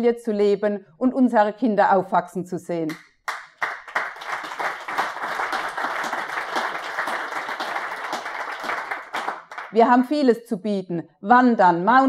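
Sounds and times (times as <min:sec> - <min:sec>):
audience applauding: 0:03.3 - 0:09.8.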